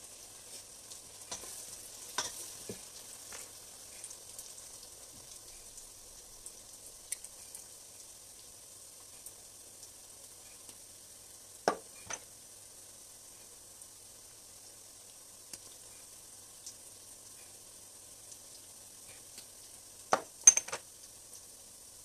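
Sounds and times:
stew frying in a steel pot: 0:00.0 - 0:22.0
glass spice jars clacking: 0:20.2 - 0:20.8.

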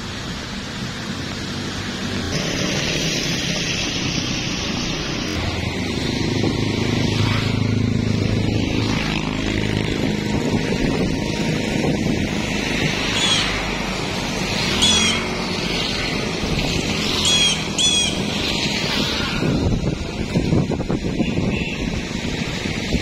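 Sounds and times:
motor traffic noise: 0:00.0 - 0:23.0
vehicle engine hum: 0:00.0 - 0:23.0
bird calling sharply: 0:13.2 - 0:13.6, 0:14.8 - 0:15.3.

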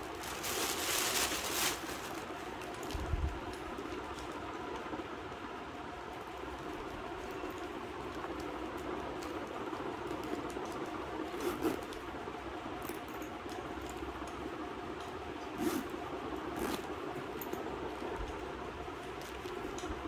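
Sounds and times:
steady background hiss: 0:00.0 - 0:20.0
backpack zipper clicks and rustles: 0:11.3 - 0:12.0, 0:15.5 - 0:16.9.

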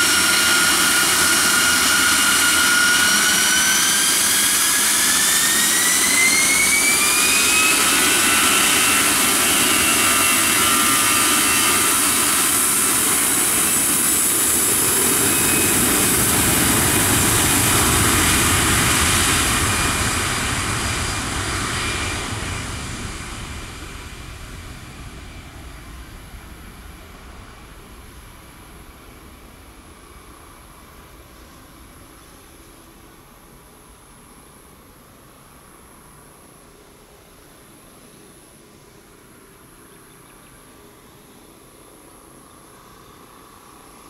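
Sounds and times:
jet engines spooling up: 0:00.0 - 0:32.4.

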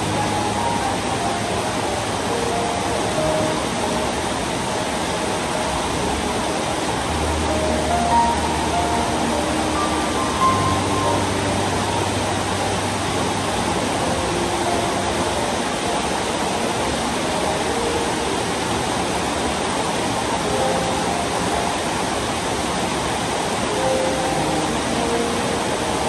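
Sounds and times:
rain falling steadily: 0:00.0 - 0:26.0.

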